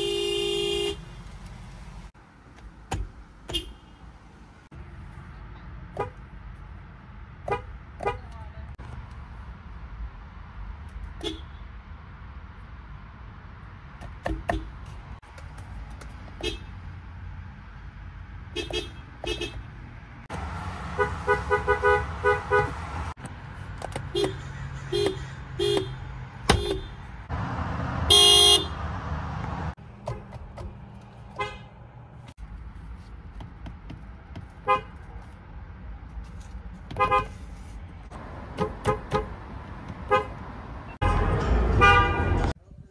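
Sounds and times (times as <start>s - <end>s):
car horns honking: 0.0s - 1.1s, 3.4s - 4.0s, 5.9s - 6.3s, 7.4s - 8.4s, 16.4s - 16.8s, 18.5s - 19.9s, 20.5s - 23.1s, 24.0s - 27.2s, 28.0s - 29.0s, 31.3s - 31.8s, 34.6s - 35.0s, 36.9s - 37.5s, 38.2s - 42.6s.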